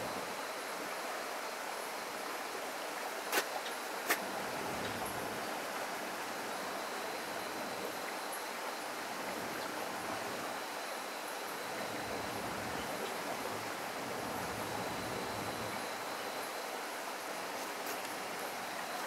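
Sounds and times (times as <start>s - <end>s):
running water rushing: 0.0s - 19.0s.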